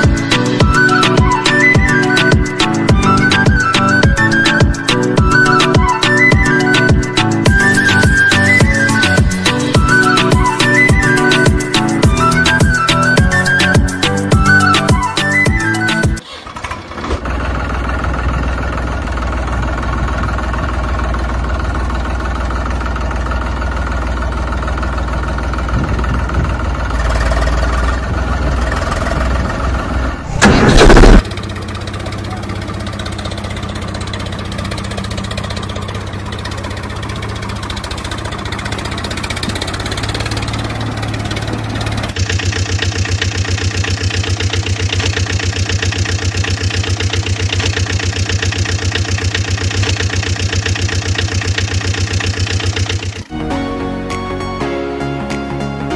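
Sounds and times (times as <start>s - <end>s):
fast even engine chugging: 0.0s - 53.3s
tractor engine running and idling: 0.0s - 54.4s
loud engine burst: 30.2s - 31.8s.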